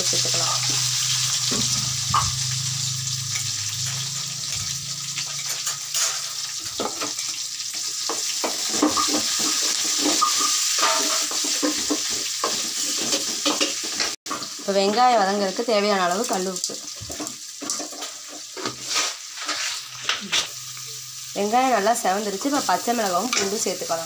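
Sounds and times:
onions sizzling in oil: 0:00.0 - 0:24.0
low hum: 0:00.2 - 0:05.9
spatula scraping a pan: 0:03.1 - 0:14.6, 0:17.1 - 0:20.6.

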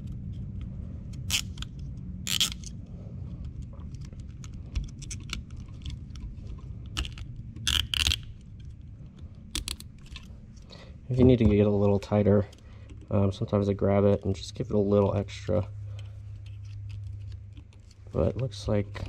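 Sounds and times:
zip tie ratchet clicking: 0:01.2 - 0:01.7, 0:02.3 - 0:02.7, 0:07.0 - 0:08.3.

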